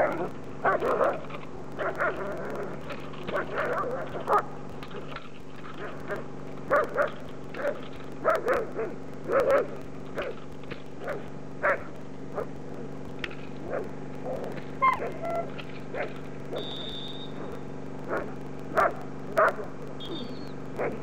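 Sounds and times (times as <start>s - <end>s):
dog barking: 0.0s - 4.6s, 5.8s - 10.4s, 11.0s - 12.5s, 13.6s - 16.7s, 18.1s - 21.0s.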